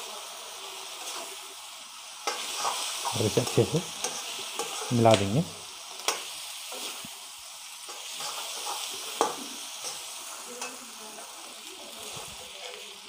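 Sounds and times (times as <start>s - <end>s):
chicken sizzling in a pan: 0.0s - 13.0s
spatula scraping a pan: 0.8s - 1.4s, 2.2s - 5.1s, 6.0s - 7.1s, 7.8s - 11.3s.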